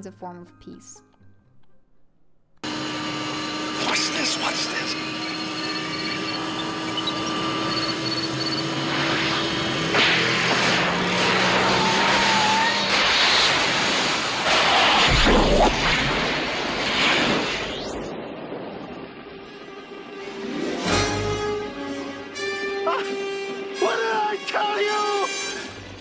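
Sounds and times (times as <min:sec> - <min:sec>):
car engine rising: 0:02.6 - 0:18.2
crackling electrical discharges: 0:07.2 - 0:19.6
orchestral music: 0:18.1 - 0:26.0.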